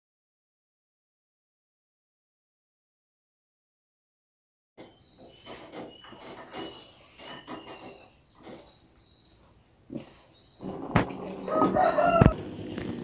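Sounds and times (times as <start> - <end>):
insects chirring: 4.8 - 13.0.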